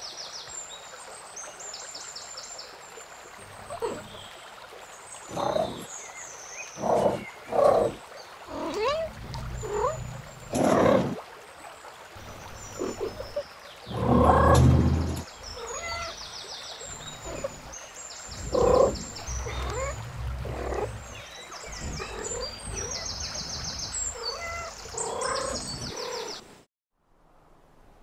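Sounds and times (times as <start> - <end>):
animal calls: 3.5 - 4.2, 5.3 - 5.9, 6.8 - 11.2, 12.7 - 17.7, 18.3 - 26.4
low rumbling bursts: 8.5 - 11.2, 13.9 - 15.5, 18.3 - 25.9.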